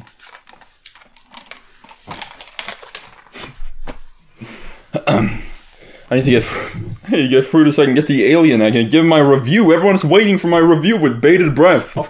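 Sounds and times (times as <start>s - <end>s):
crunching and rustling: 0.0s - 4.2s.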